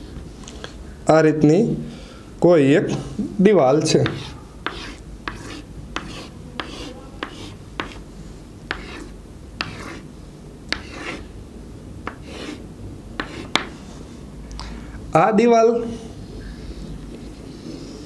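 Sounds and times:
chalk scratching on blackboard: 0:03.9 - 0:08.1, 0:08.7 - 0:10.1, 0:10.7 - 0:11.3, 0:12.1 - 0:12.6, 0:13.2 - 0:13.9.

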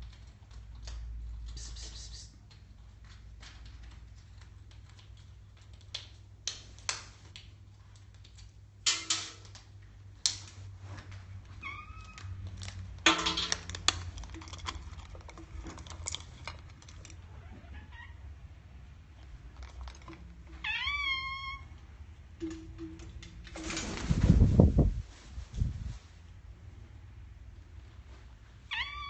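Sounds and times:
beak rummaging in metal bowl: 0:12.6 - 0:17.4, 0:19.4 - 0:20.4.

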